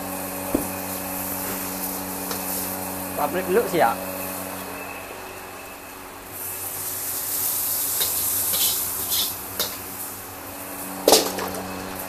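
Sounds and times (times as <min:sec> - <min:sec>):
stir-fry sizzling in a wok: 0:00.0 - 0:12.0
metal ladle scraping a wok: 0:07.9 - 0:10.0.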